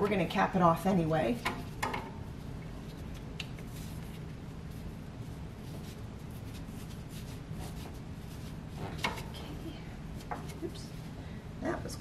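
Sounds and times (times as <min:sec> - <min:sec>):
steady low hum: 0:00.0 - 0:12.0
gloved hands rubbing: 0:02.8 - 0:09.4.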